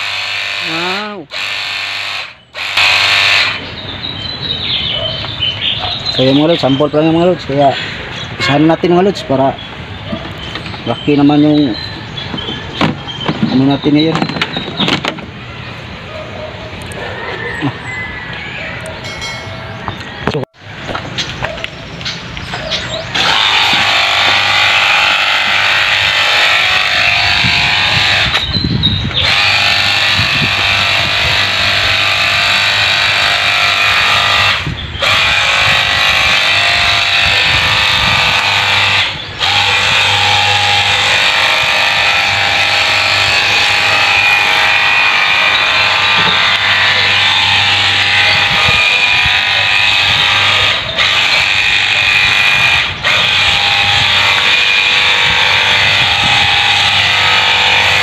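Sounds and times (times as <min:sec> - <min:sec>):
electric pump spraying water: 0:00.0 - 0:03.8, 0:23.1 - 0:28.5, 0:29.1 - 0:58.0.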